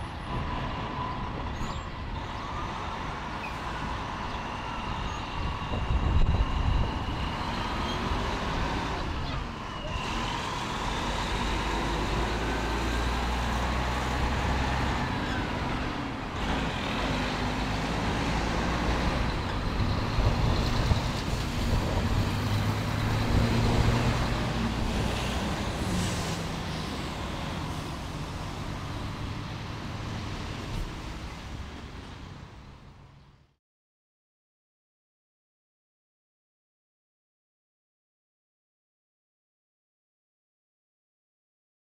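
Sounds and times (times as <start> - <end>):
electric train moving on track: 0.0 - 33.1
truck passing close by: 0.0 - 33.2
engine rumble and road noise: 0.0 - 33.6.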